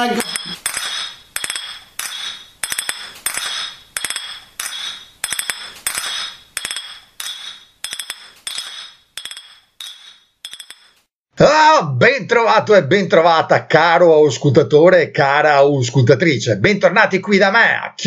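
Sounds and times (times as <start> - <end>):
cutlery clinking on crockery: 0.0 - 11.0.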